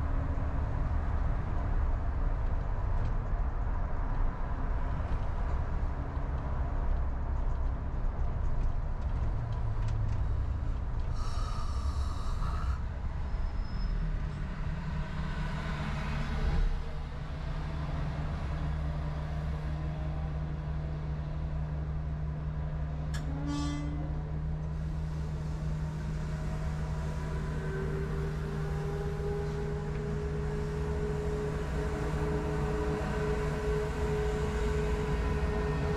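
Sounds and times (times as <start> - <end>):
car road noise: 0.0 - 23.3, 24.3 - 35.9.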